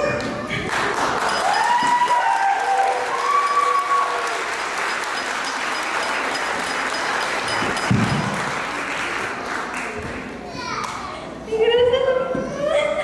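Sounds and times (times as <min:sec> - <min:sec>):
crowd applauding: 0:00.1 - 0:10.4.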